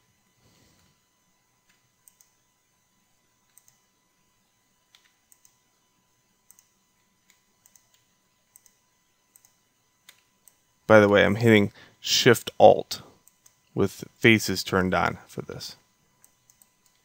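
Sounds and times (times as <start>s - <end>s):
computer mouse clicks: 1.7s - 2.4s, 3.5s - 3.8s, 4.9s - 5.6s, 6.5s - 10.6s, 13.2s - 13.6s, 16.2s - 17.0s.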